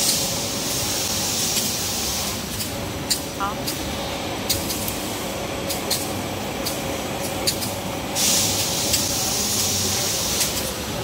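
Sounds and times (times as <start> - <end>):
loud hiss: 0.0 - 3.0, 4.6 - 11.0
faint machine hum: 0.0 - 11.0
paper machinery running: 0.0 - 11.0.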